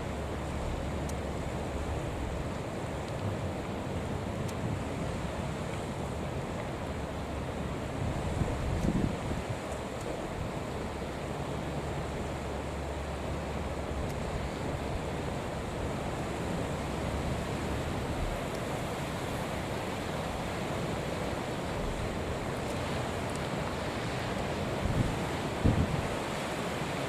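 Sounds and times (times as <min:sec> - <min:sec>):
surf of rough sea: 0:00.0 - 0:27.0
wind: 0:00.0 - 0:27.0
wind buffeting microphone: 0:08.1 - 0:09.6, 0:24.8 - 0:26.3.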